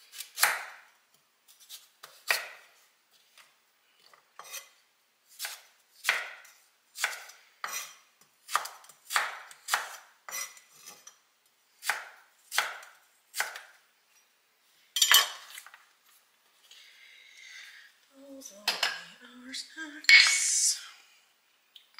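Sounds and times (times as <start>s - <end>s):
knife slicing carrot on board: 5.4s - 6.4s, 7.0s - 7.9s, 8.5s - 10.5s.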